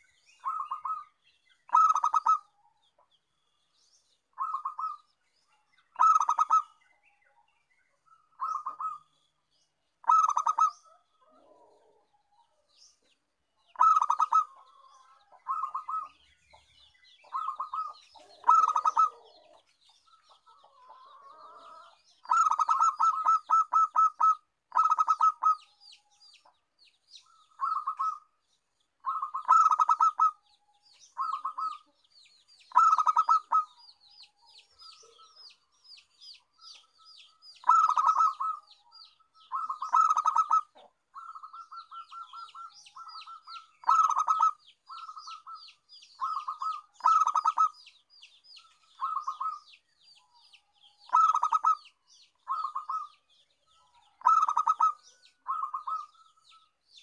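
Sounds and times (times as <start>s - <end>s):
dove cooing: 0.4s - 1.1s, 1.7s - 2.5s, 4.4s - 5.1s, 6.0s - 6.8s, 8.4s - 9.1s, 10.0s - 12.6s, 13.7s - 16.2s, 17.2s - 25.7s, 27.2s - 28.3s, 29.0s - 30.4s, 31.1s - 32.0s, 32.7s - 33.8s, 37.6s - 47.8s, 48.8s - 49.7s, 51.0s - 53.2s, 53.9s - 56.4s.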